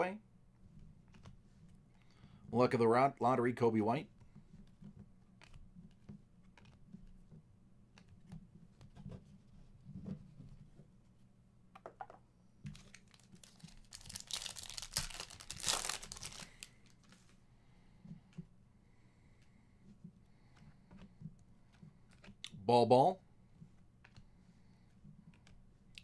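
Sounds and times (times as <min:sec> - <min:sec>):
foil wrapper crinkling and tearing: 0:12.8 - 0:17.2.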